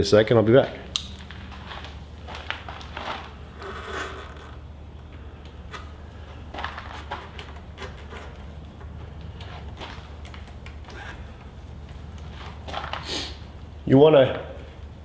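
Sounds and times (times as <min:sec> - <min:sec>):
low steady hum: 0:00.0 - 0:15.0
gloved hands rustling and scraping: 0:01.2 - 0:04.6, 0:05.6 - 0:13.5.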